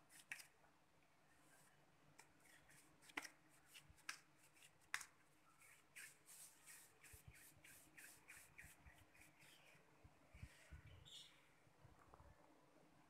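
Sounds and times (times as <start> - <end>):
dough rubbed between palms: 2.4 - 9.9.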